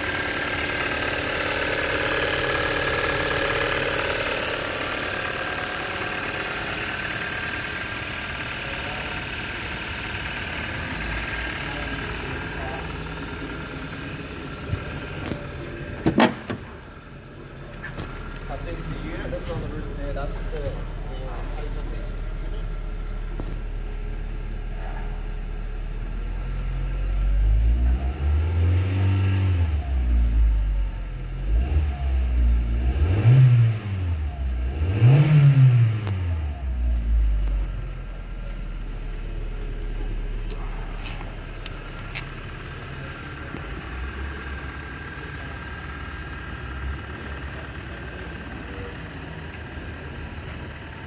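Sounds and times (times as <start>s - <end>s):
car engine idling and revving: 0.0s - 51.0s.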